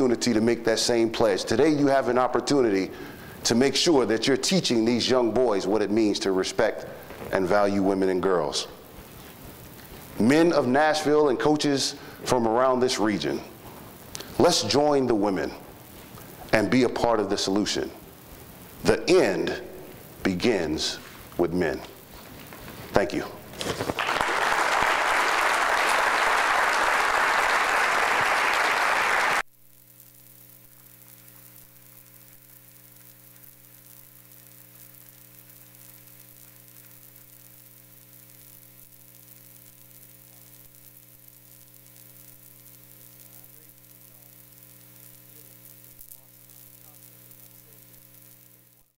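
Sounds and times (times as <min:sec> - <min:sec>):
faint electrical hum: 0:00.0 - 0:49.0
low hiss: 0:00.0 - 0:49.0
audience applauding: 0:23.9 - 0:29.4.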